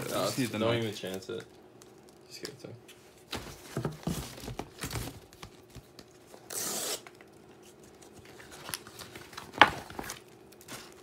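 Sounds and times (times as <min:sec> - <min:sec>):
paper handling sounds: 0:07.2 - 0:11.0.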